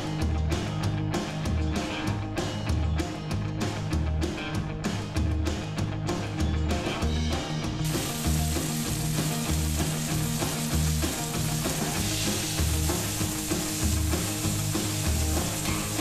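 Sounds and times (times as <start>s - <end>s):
background music with bass line: 0.0s - 16.0s
food sizzling in hot oil: 7.8s - 16.0s.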